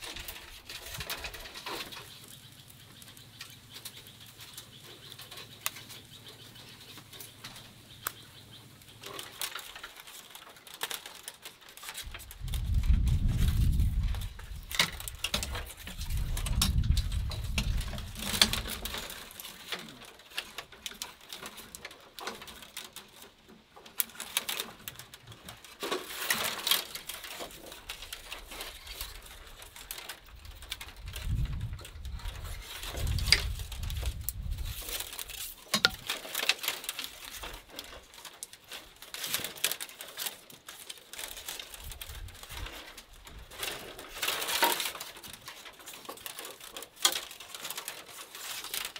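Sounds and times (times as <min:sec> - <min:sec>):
bamboo strips rustling and clicking: 0:00.0 - 0:48.9.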